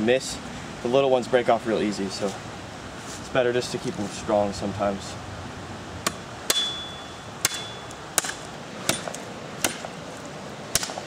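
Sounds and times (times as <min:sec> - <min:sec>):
knife chopping wood: 0:07.4 - 0:10.0, 0:10.7 - 0:11.0.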